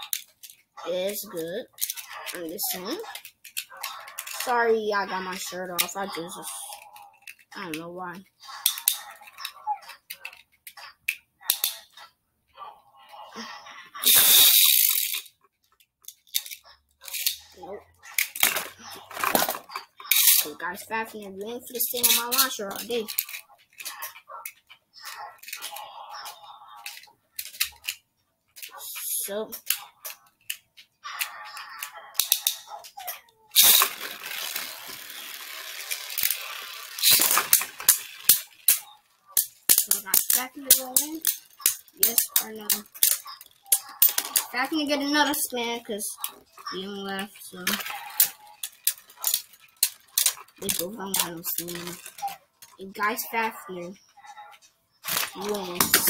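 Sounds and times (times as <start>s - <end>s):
plastic clicks and rattles: 0.0s - 4.6s, 5.3s - 12.1s, 14.0s - 20.6s, 21.4s - 56.0s
spinning top hissing: 14.0s - 15.2s, 33.6s - 38.8s
spinning top launcher ratcheting: 14.0s - 15.3s, 18.2s - 20.7s, 21.7s - 23.4s, 33.5s - 46.9s.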